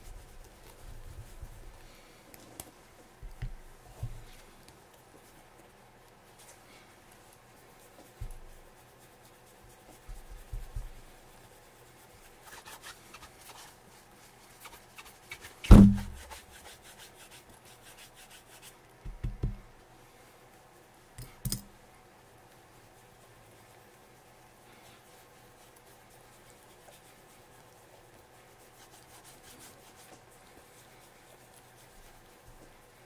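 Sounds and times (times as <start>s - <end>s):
hands rubbing leather boot: 0.0s - 5.5s, 6.1s - 18.8s, 22.6s - 33.0s
knocks and thumps: 15.6s - 16.2s, 19.0s - 19.6s.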